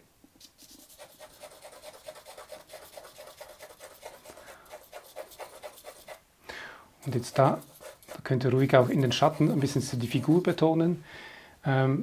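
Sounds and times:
charcoal scratching on paper: 0.4 - 6.2, 7.0 - 10.6.

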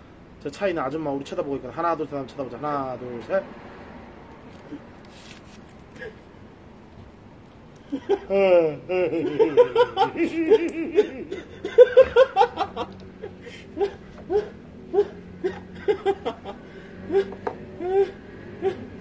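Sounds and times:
man laughing: 7.8 - 18.8.

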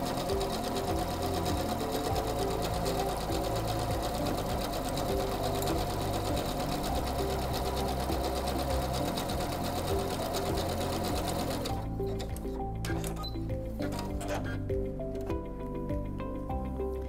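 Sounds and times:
sewing machine stitching: 0.0 - 14.6.

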